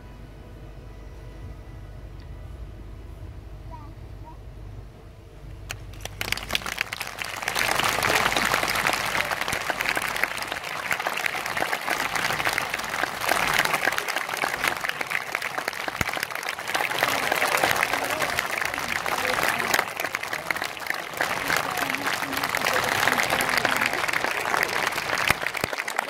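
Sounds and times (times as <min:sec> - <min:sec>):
audience applauding: 0:05.7 - 0:26.0.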